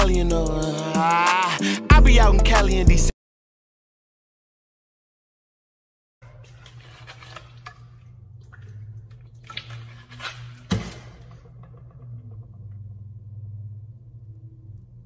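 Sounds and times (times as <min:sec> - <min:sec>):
steady low hum: 0:10.9 - 0:15.0.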